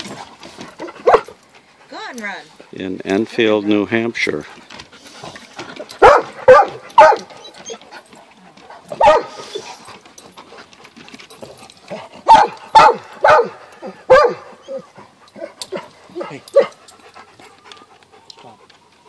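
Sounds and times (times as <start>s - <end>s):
dogs barking: 0.8s - 1.4s, 5.8s - 7.8s, 8.8s - 9.6s, 12.2s - 16.8s.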